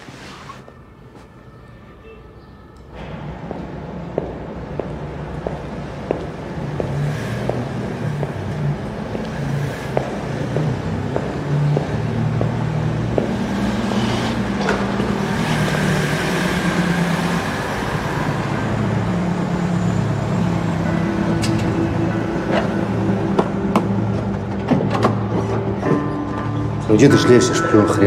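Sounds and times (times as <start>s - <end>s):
low vehicle rumble: 2.9s - 26.9s
footsteps on hard floor: 3.4s - 7.6s.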